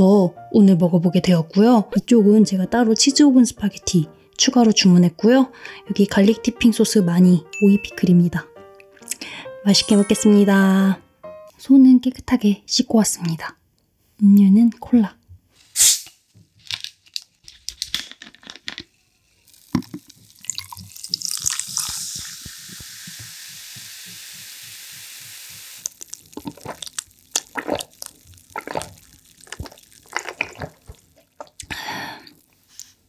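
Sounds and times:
cola fizzing as poured: 0:19.3 - 0:32.9.

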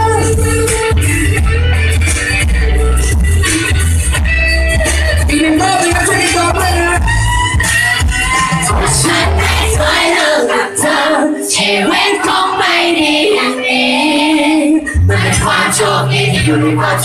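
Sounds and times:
person singing into microphone: 0:00.0 - 0:01.6, 0:08.3 - 0:17.0
pop backing music: 0:00.0 - 0:17.0.

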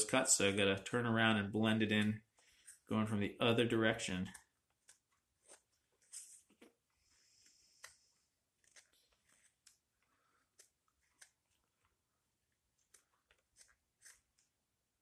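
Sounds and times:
knife shaving wood: 0:04.3 - 0:14.8.

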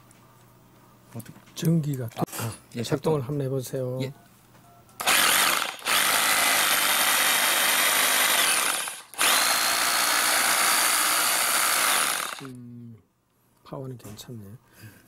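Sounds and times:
hammer drill motor whining: 0:05.0 - 0:12.6.

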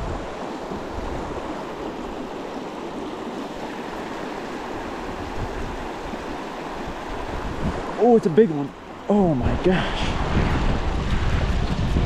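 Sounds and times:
creek water rushing over rocks: 0:00.0 - 0:12.0.

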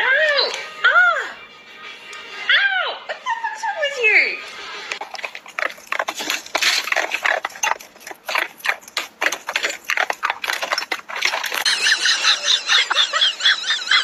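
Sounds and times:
dog crunching icicles: 0:04.9 - 0:11.7.

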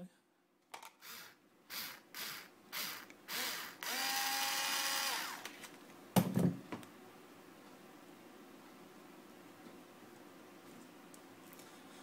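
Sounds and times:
drill motor whine: 0:01.0 - 0:05.5
drill trigger bursts: 0:01.0 - 0:05.5.

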